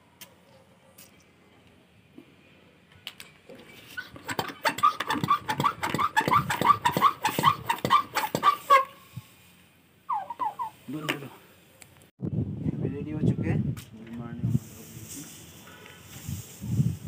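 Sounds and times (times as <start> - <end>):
hand pump squeaking: 4.0 - 8.8.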